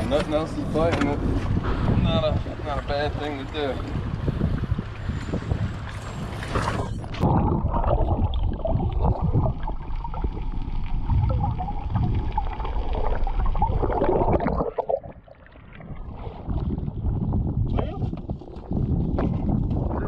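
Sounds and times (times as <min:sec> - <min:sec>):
water gurgling and sloshing: 0:00.0 - 0:20.0
crackling bubbles: 0:04.2 - 0:20.0.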